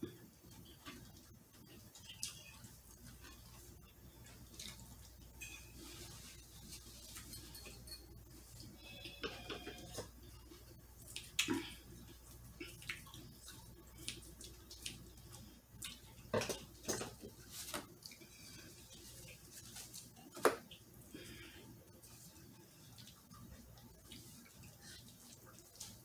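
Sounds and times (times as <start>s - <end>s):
wet chewing and lip smacks: 11.0s - 16.3s.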